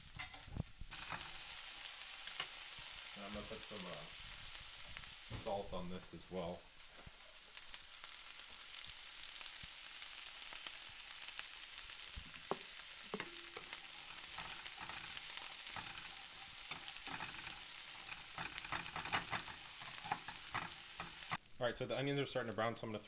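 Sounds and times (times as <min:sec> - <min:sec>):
spatula scraping a pan: 0:00.0 - 0:02.8, 0:12.4 - 0:21.4
onion sizzling in a skillet: 0:00.0 - 0:23.0.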